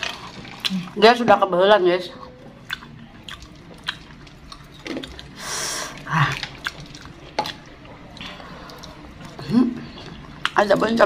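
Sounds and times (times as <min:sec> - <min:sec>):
chewing and biting food: 0:02.2 - 0:10.8
breathy exhale: 0:05.4 - 0:06.2.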